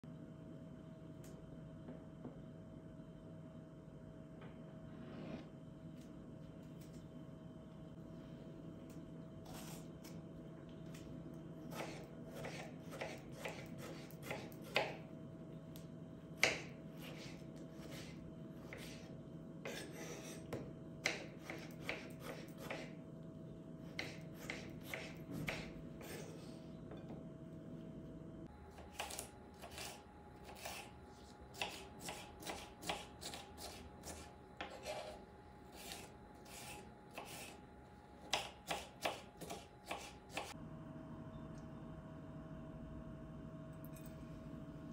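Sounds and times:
knife chopping on wooden board: 11.7s - 15.0s, 16.4s - 23.0s, 23.9s - 26.3s, 28.8s - 30.9s, 31.5s - 35.2s, 35.8s - 37.6s, 38.2s - 40.6s.

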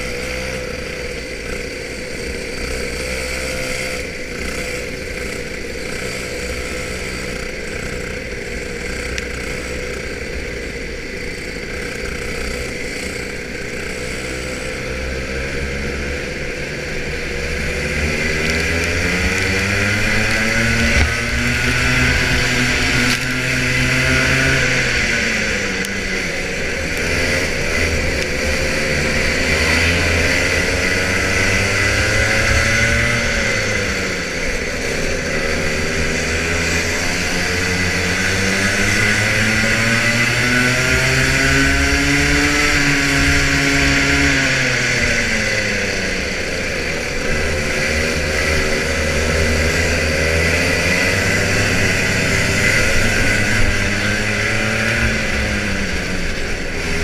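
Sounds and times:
kart engine revving: 0.0s - 57.0s.

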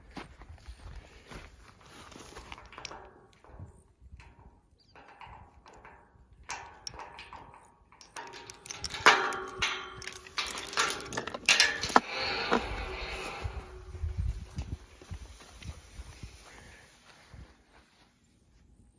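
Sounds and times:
chain rattling against metal gate: 2.4s - 14.0s.

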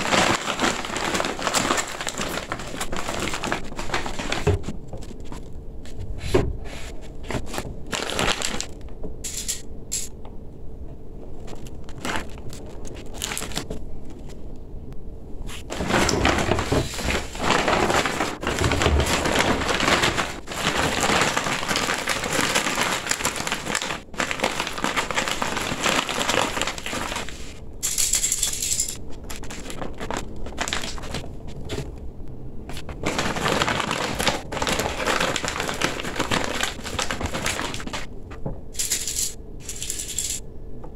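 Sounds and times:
stiff fabric crinkling and rustling: 0.0s - 8.8s, 11.4s - 14.4s, 15.5s - 27.6s, 29.0s - 32.0s, 32.7s - 38.1s.

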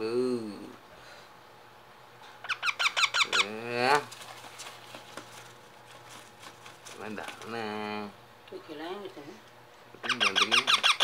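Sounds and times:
parakeet chick chirping: 2.4s - 3.6s, 10.0s - 11.0s.

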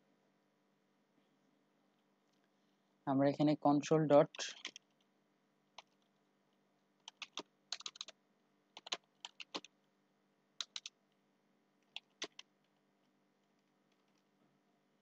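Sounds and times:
keyboard typing clicks: 4.4s - 4.9s, 7.1s - 8.1s, 8.8s - 9.7s, 10.6s - 11.0s, 11.8s - 12.5s.

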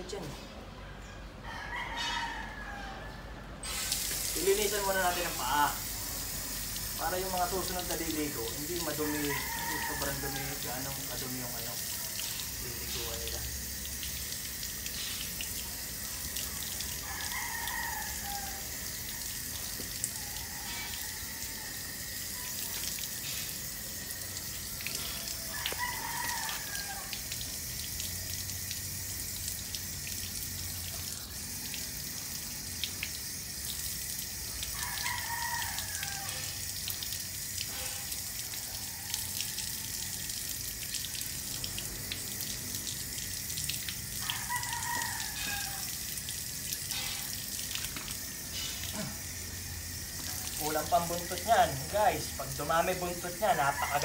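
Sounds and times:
rooster crowing: 0.8s - 3.6s, 8.6s - 12.3s, 16.5s - 27.7s, 34.3s - 36.8s, 37.7s - 42.5s, 44.0s - 47.5s, 48.3s - 54.0s
tap water splashing: 3.9s - 4.5s, 6.6s - 11.3s, 19.0s - 21.0s, 24.4s - 31.9s, 32.8s - 49.3s, 50.0s - 52.2s.

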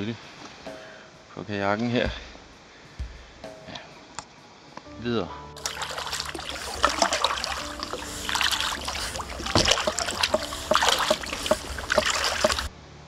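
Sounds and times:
paddle splashing water: 5.6s - 12.7s
paddle knocks: 6.4s - 12.7s.

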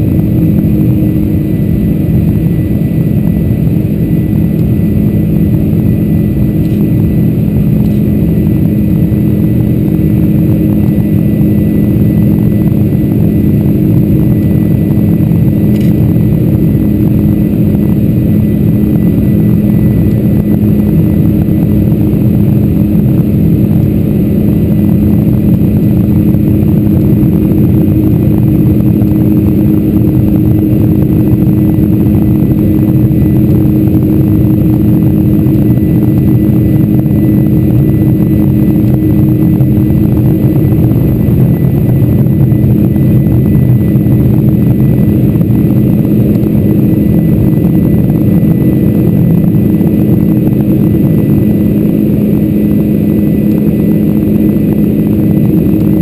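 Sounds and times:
jet engine cabin drone: 0.0s - 56.0s.

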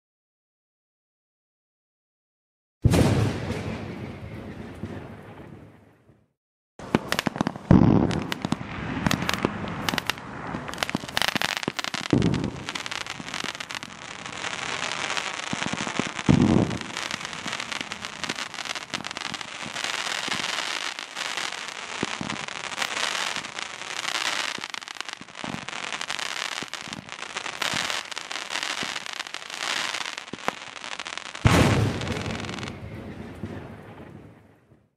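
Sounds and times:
heavy firework booms: 2.8s - 5.8s, 6.8s - 24.0s, 31.4s - 34.9s
crackle of small pops: 6.8s - 23.6s
fireworks cake firing: 6.8s - 34.8s.

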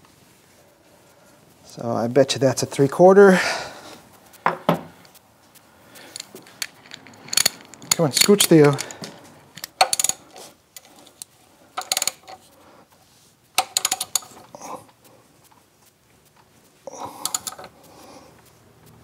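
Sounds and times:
metal clinks: 6.0s - 12.4s, 13.6s - 14.5s, 16.9s - 17.8s
socket ratchet clicking: 6.0s - 12.4s, 13.6s - 14.5s, 17.0s - 17.8s.

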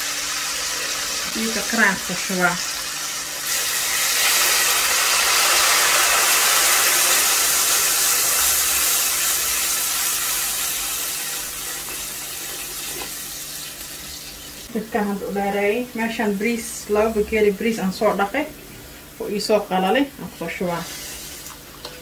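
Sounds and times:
hot oil hissing and sizzling: 0.0s - 14.7s, 20.6s - 21.5s.

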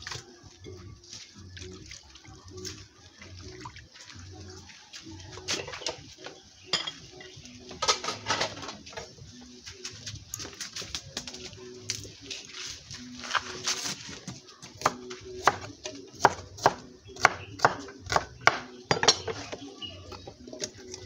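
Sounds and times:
water sloshing in metal pot: 0.0s - 9.2s
light clinks against pot: 6.7s - 7.2s.

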